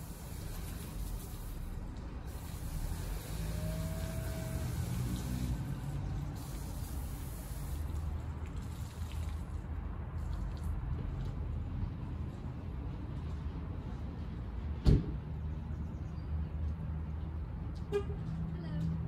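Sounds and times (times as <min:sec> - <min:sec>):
water spraying hiss: 0:00.0 - 0:09.6.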